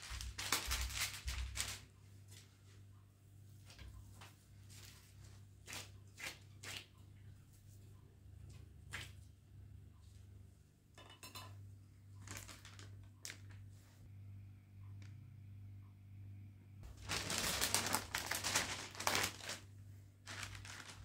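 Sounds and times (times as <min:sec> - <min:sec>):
steady low hum: 0:06.9 - 0:21.0.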